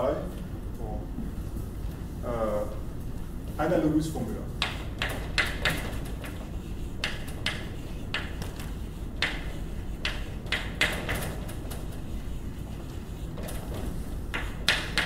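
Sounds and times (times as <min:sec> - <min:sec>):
low room hum: 0:00.0 - 0:15.0
chalk tapping and scratching: 0:04.6 - 0:15.0.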